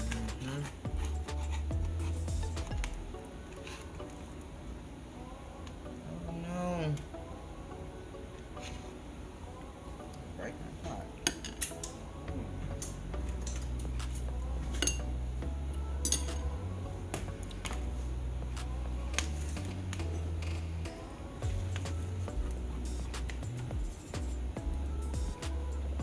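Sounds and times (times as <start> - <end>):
low hum: 12.1 - 26.0.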